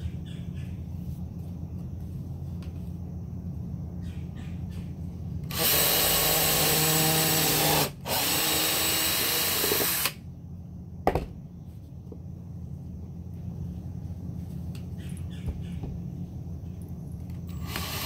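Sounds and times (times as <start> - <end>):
drill drilling into wood: 5.5 - 10.2, 17.5 - 18.0.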